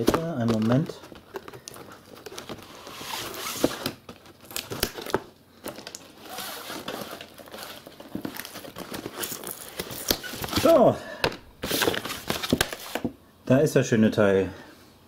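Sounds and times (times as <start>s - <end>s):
plastic packaging crinkling and tearing: 0.0s - 10.9s
tape being pulled off: 2.4s - 4.0s.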